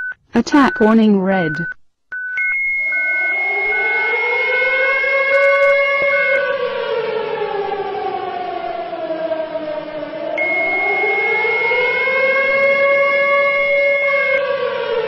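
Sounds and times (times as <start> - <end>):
short repeated beeps: 0.0 - 3.1
air-raid siren wailing: 2.5 - 15.0
steady high tone: 10.3 - 11.7.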